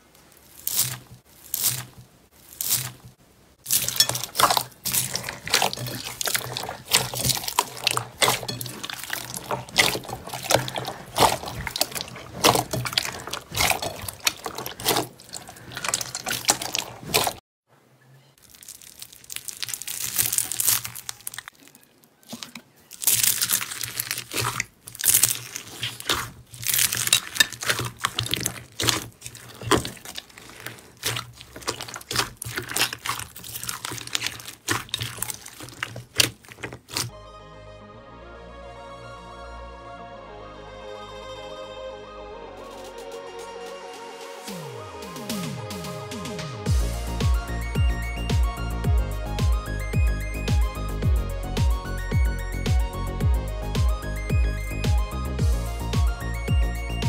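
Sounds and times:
foam beads crackling and popping: 0.0s - 17.4s, 18.4s - 37.1s
slime squelching: 0.0s - 17.4s, 18.4s - 37.1s.

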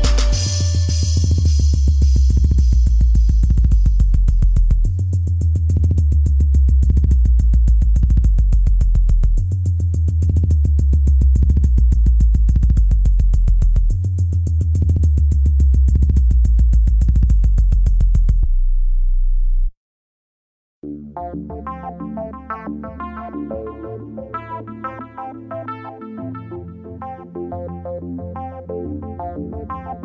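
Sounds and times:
drum-machine pattern: 0.0s - 18.5s
deep sub-bass notes: 0.0s - 19.7s.

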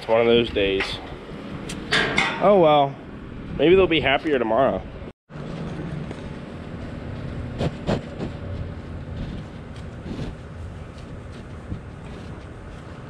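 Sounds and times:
low rumble: 4.8s - 13.0s.

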